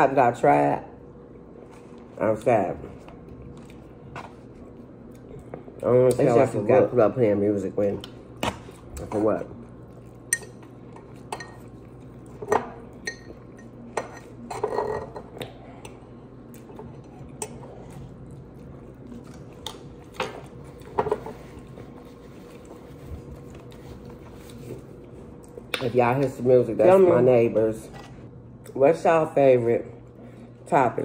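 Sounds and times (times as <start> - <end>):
faint steady hum: 0.0 - 31.0
person chewing food: 15.3 - 25.8.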